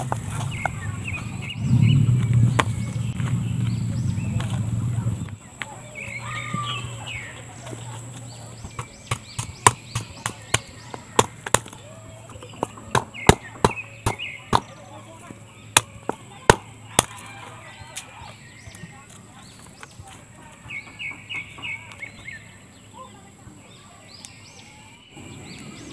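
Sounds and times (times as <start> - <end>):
machete chopping coconut shells: 8.6 - 14.8, 15.7 - 17.3.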